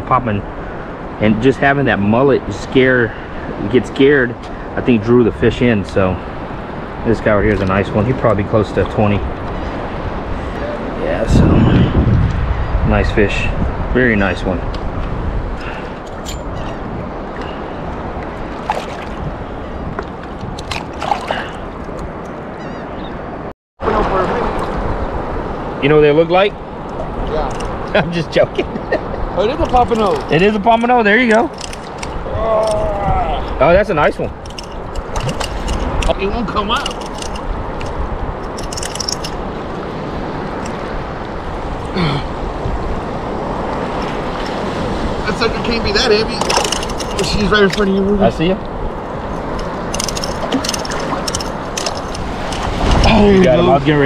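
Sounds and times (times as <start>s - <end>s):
wind on microphone: 0.0s - 54.0s
surf water sloshing: 0.4s - 11.6s, 13.1s - 22.8s, 23.8s - 32.8s, 33.4s - 54.0s
brief splashes: 18.6s - 19.3s, 20.6s - 21.7s.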